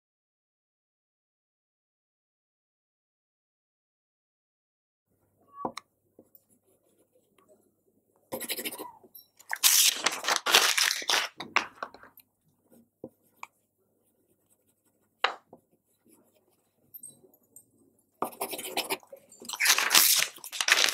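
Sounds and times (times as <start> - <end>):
paper crumpling: 9.4 - 12.0, 18.6 - 20.9.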